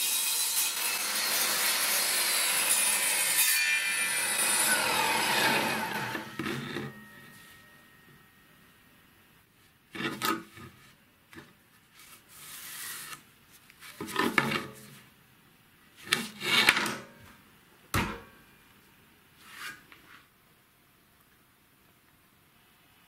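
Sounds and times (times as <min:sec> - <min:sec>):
wood scraping on metal table: 0:04.6 - 0:07.4.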